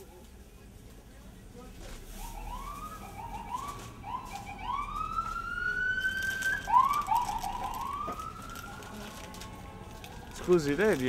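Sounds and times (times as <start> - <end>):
siren wailing: 2.2 - 9.4.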